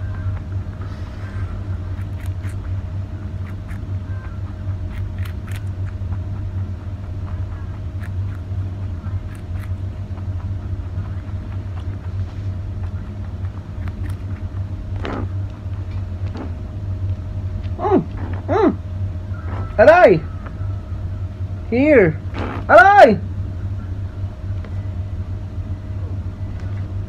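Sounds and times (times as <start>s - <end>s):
rabbit chewing carrot: 0.0s - 18.5s
steady low hum: 0.0s - 27.0s.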